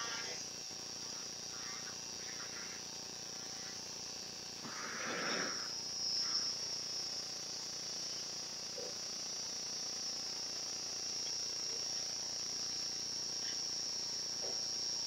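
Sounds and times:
surgical burr whining: 0:04.6 - 0:06.7.

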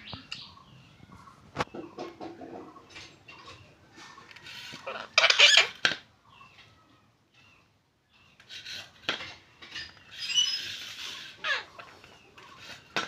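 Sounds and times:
beak scraping metal plate: 0:08.4 - 0:13.0.

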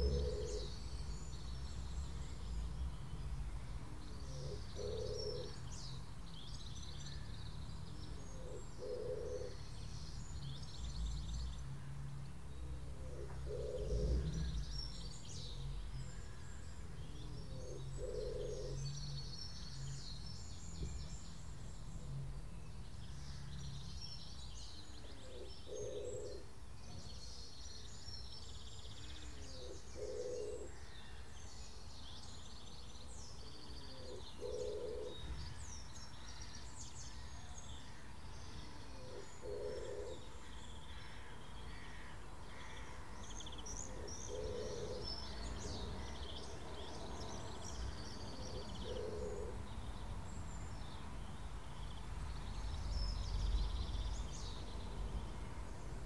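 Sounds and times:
low cooing call: 0:00.0 - 0:00.9, 0:04.2 - 0:05.6, 0:08.3 - 0:09.7, 0:12.9 - 0:14.7, 0:17.4 - 0:19.0, 0:25.1 - 0:26.5, 0:29.2 - 0:30.8, 0:33.6 - 0:35.6, 0:38.7 - 0:40.4, 0:43.8 - 0:46.6, 0:48.3 - 0:49.7
small birds chirping: 0:00.0 - 0:56.0.

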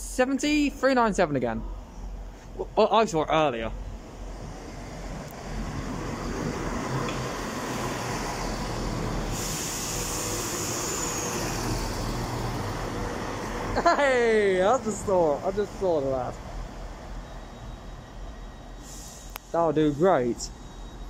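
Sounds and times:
diesel train engines droning: 0:00.0 - 0:21.0
hiss: 0:07.3 - 0:12.5, 0:18.7 - 0:20.5.

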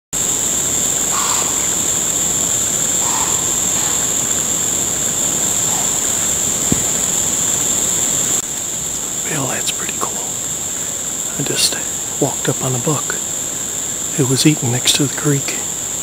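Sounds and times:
insects droning: 0:00.0 - 0:16.0
rough background rush: 0:00.1 - 0:14.8
short low calls: 0:00.2 - 0:08.4.

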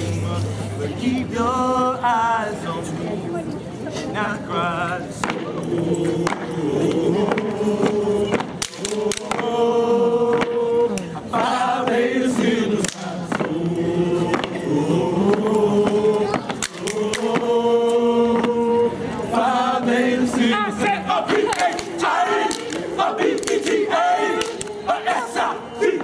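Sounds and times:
voices singing in unison: 0:00.0 - 0:26.0
people clapping: 0:06.2 - 0:09.6, 0:10.3 - 0:13.6, 0:15.3 - 0:18.5, 0:21.2 - 0:26.0.

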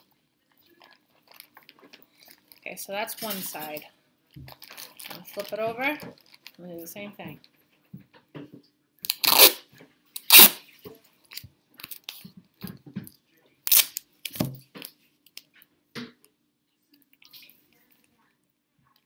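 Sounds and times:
plastic bag crinkling: 0:00.6 - 0:03.8, 0:04.4 - 0:06.7
duct tape ripping off roll: 0:09.0 - 0:10.6, 0:13.7 - 0:14.5.

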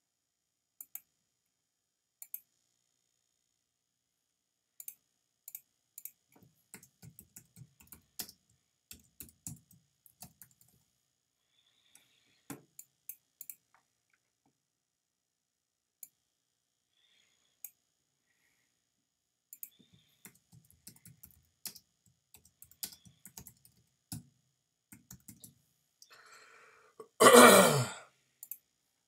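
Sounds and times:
mouse clicks: 0:02.2 - 0:02.5, 0:04.8 - 0:06.2
keyboard typing: 0:04.8 - 0:10.8, 0:19.5 - 0:24.3, 0:24.9 - 0:25.6.

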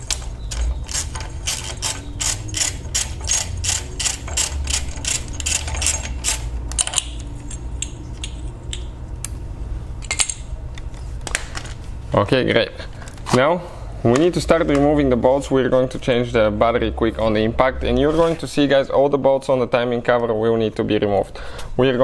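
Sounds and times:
hand ratchet clicking: 0:00.0 - 0:07.2.

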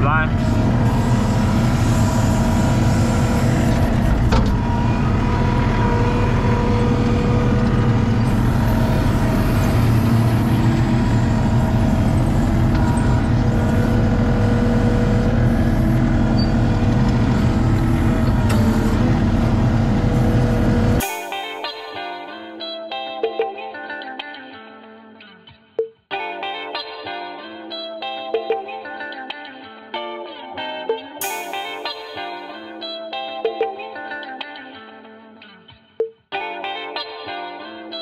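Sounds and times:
diesel engine running under load: 0:00.0 - 0:21.0.

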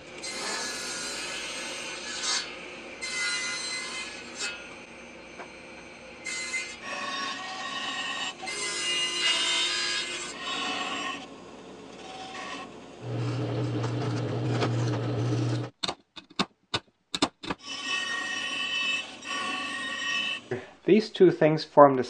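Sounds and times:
bandsaw cutting plywood: 0:00.2 - 0:04.7, 0:12.0 - 0:15.7
drill press motor humming: 0:12.0 - 0:15.7.

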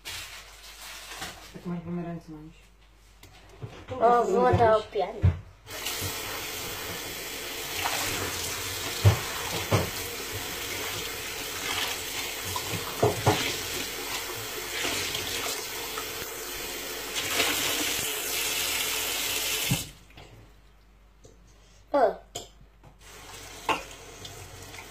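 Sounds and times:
tap running into a sink: 0:05.7 - 0:07.2, 0:07.8 - 0:11.2, 0:12.5 - 0:13.8.

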